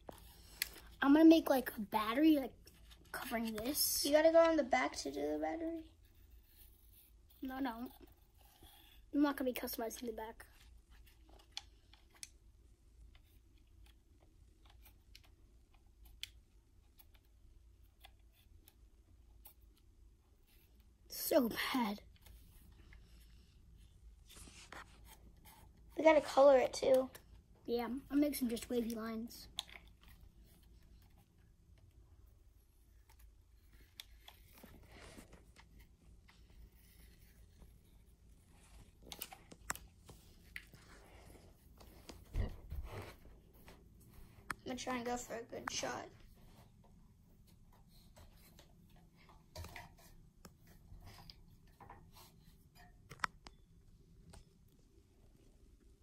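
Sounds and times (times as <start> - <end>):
pencil scratching on plastic: 2.4 - 9.7, 22.1 - 26.8.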